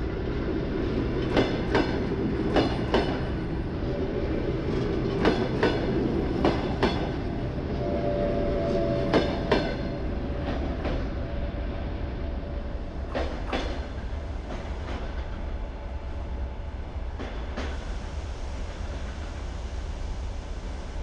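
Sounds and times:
train wheels clicking over rail joints: 0.2 - 3.6, 4.5 - 7.4, 9.0 - 11.1, 13.0 - 15.4, 17.1 - 17.9.

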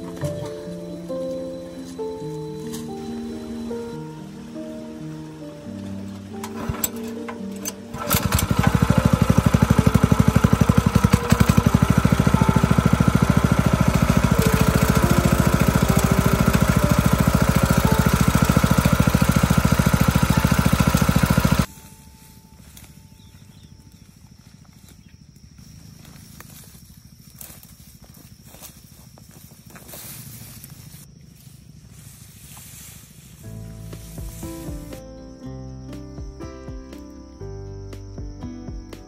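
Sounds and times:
small petrol engine running: 6.3 - 21.7.

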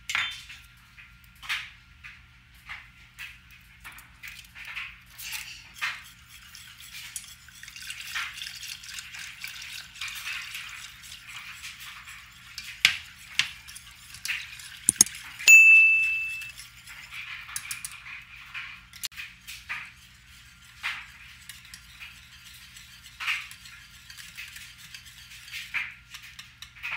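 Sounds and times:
wire whisk stirring: 4.0 - 18.0, 19.5 - 26.9
clinks against metal saucepan: 14.9 - 16.5.

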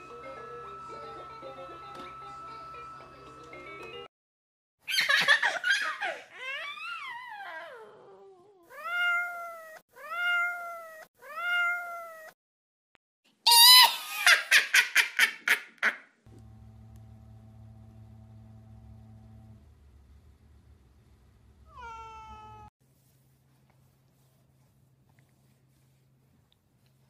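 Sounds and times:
cat meowing: 8.7 - 12.3, 21.7 - 22.7
quick high cat cries: 13.5 - 14.2.

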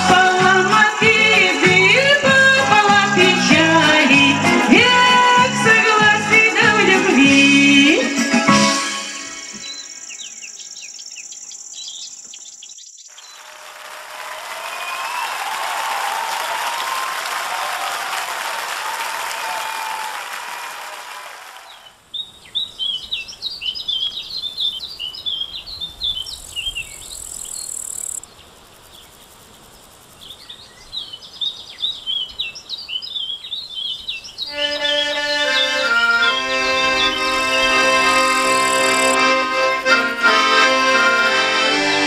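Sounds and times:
button accordion playing a tune: 0.0 - 10.0, 34.5 - 42.0
songbirds chirping and twittering: 7.7 - 13.6, 21.7 - 42.0
applause: 13.2 - 21.9.

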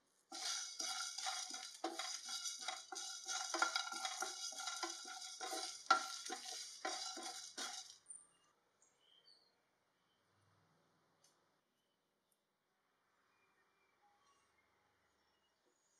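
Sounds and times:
seeds rustling and rattling: 0.3 - 8.0
wooden spatula scraping pan: 0.3 - 8.0.

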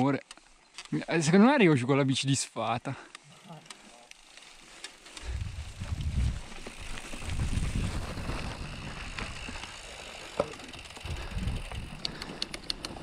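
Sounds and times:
bike rattling and clicking: 2.9 - 13.0
bike tyres rumbling on trail: 3.3 - 13.0.

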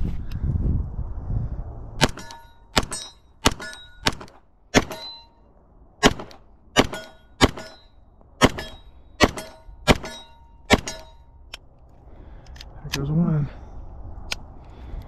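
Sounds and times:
pistol shots cracking: 2.0 - 5.2, 6.0 - 7.8, 8.4 - 11.2.

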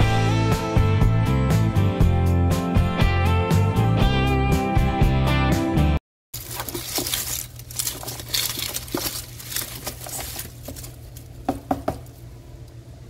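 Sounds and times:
background music: 0.0 - 6.0
onion skins crinkling and rustling: 6.4 - 12.3
bulbs knocking against plastic: 10.7 - 12.2.

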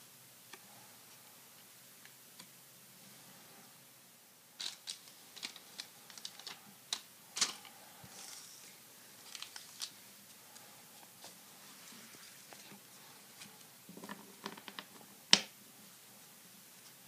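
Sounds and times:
wrapper crinkling: 4.6 - 10.4.

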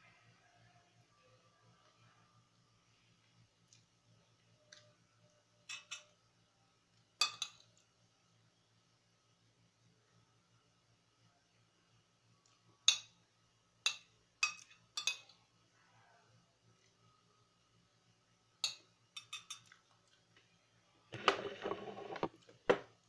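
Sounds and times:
fork clinking on ceramic plate: 5.7 - 6.2, 13.9 - 15.4, 18.6 - 19.8.

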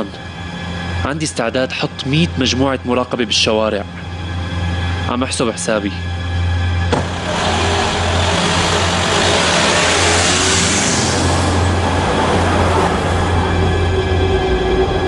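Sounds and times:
car driving past: 6.9 - 14.2.

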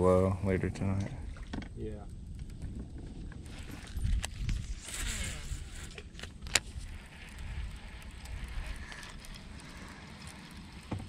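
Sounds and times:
fishing reel reeling: 3.4 - 11.0
reel click: 3.6 - 10.9.

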